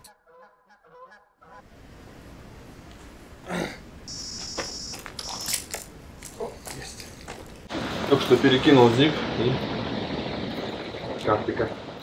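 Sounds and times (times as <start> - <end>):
high-pitched bite alarm tone: 4.1 - 5.5.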